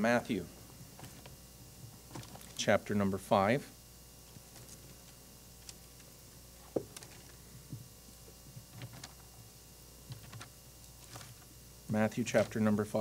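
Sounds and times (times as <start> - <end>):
low room hum: 0.0 - 13.0
pages rustling: 10.1 - 11.5, 12.3 - 12.7.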